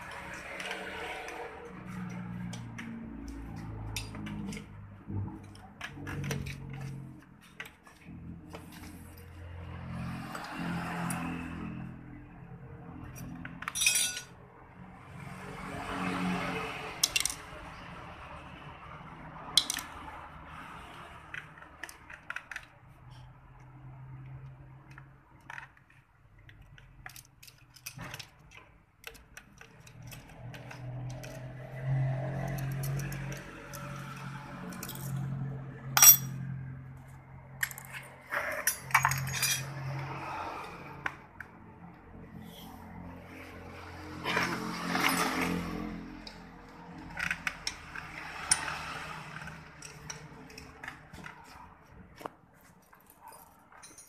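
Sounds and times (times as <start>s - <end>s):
metal parts and tools clinking: 0.0s - 9.3s, 13.0s - 14.4s, 17.0s - 17.5s, 19.6s - 20.0s, 24.9s - 36.5s, 37.6s - 40.0s, 44.2s - 46.4s, 47.0s - 54.0s
metal tools clinking on engine: 13.6s - 14.3s, 17.0s - 17.4s, 32.5s - 35.2s, 36.0s - 36.4s, 37.6s - 39.8s, 44.3s - 45.6s, 47.2s - 51.4s, 53.0s - 54.0s.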